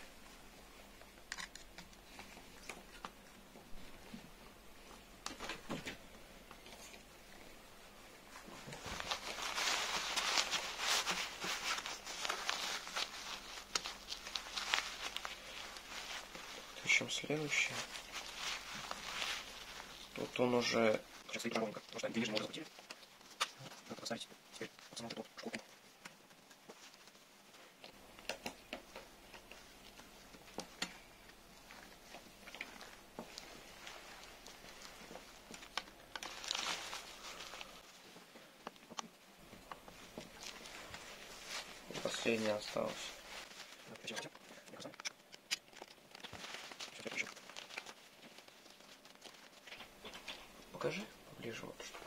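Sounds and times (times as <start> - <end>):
hands rustling fur fabric: 0.0 - 52.0.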